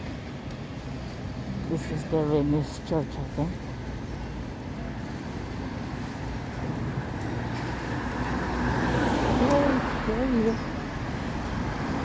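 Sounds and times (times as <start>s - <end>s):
road traffic: 0.0s - 12.0s.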